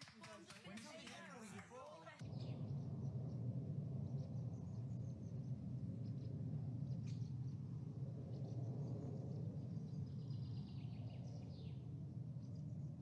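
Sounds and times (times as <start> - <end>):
birds chirping and trilling: 2.2 - 13.0.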